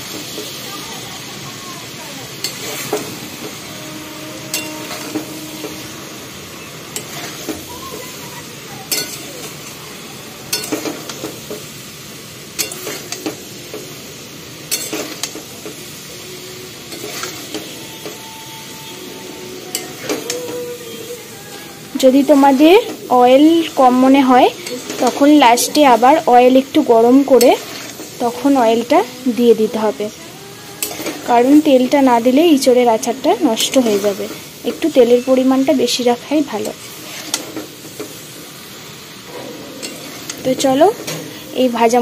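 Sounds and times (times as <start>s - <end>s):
frying sizzle: 0.0s - 42.0s
metal spatula scraping a pan: 2.4s - 9.8s, 10.5s - 11.6s, 12.6s - 13.9s, 14.6s - 38.3s, 39.2s - 42.0s
spatula clinking against pan: 4.5s - 5.8s, 8.9s - 9.6s, 10.5s - 11.2s, 12.6s - 13.3s, 14.7s - 15.4s.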